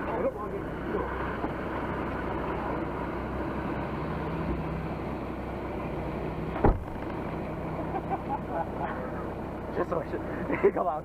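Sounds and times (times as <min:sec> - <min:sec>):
off-road vehicle engine running: 0:00.0 - 0:11.0
sharp thump: 0:06.6 - 0:07.1.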